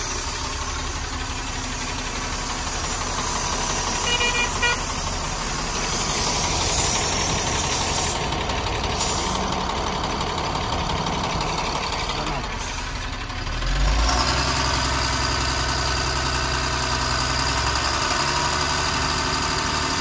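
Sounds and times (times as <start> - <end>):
road traffic: 0.0 - 20.0
truck engine running: 0.0 - 20.0
vehicle horn toots: 4.0 - 5.0.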